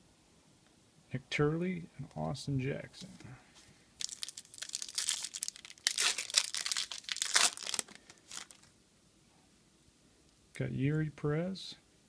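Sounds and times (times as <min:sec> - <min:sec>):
foil wrapper crinkling and tearing: 0:04.0 - 0:08.7.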